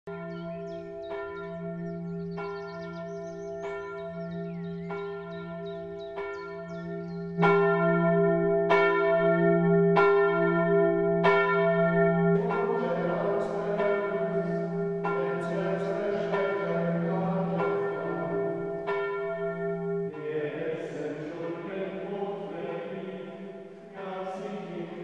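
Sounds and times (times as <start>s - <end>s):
church bell tolling: 0.1s - 25.0s.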